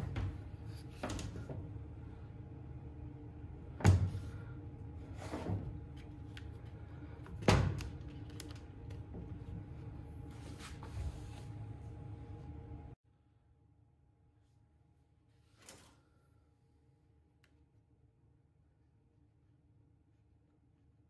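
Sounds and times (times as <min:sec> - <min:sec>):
low hum: 0:00.0 - 0:15.2.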